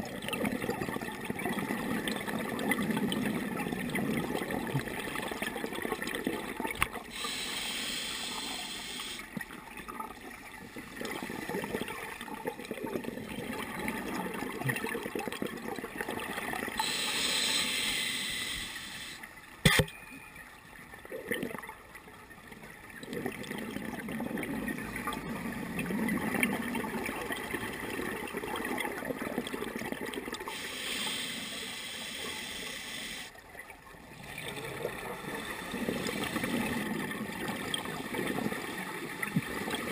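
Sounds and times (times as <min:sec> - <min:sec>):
underwater water rush: 0:00.0 - 0:19.3, 0:23.0 - 0:39.9
underwater bubble bursts: 0:23.0 - 0:30.5.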